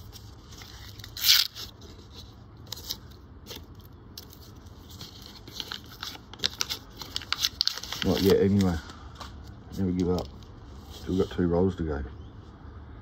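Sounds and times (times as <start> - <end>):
paper wrapper crackling: 0.0 - 9.0.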